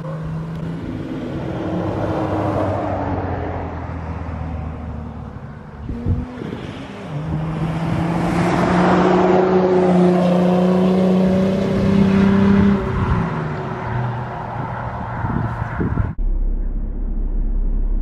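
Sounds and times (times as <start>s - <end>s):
car engine accelerating past: 5.8s - 15.8s.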